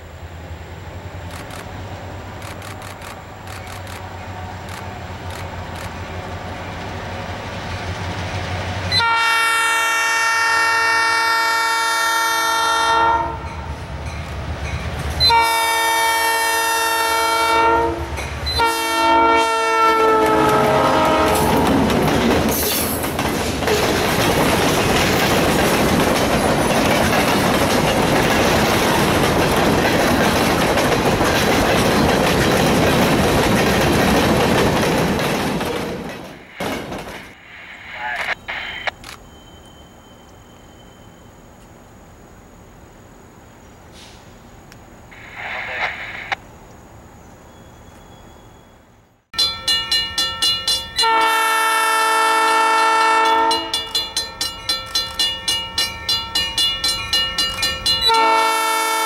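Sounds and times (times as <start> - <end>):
train wheels rumbling on rails: 0.0 - 9.1, 13.2 - 37.5, 52.2 - 59.0
locomotive chime horn blasts: 8.9 - 13.7, 15.2 - 21.6, 49.4 - 54.2, 57.8 - 59.0.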